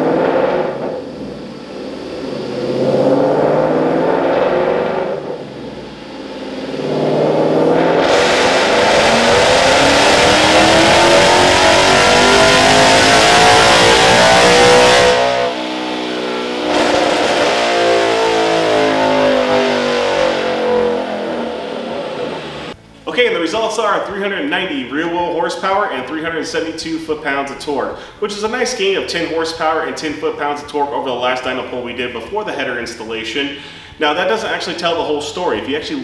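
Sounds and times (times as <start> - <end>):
car engine revving on dyno: 0.0 - 22.8.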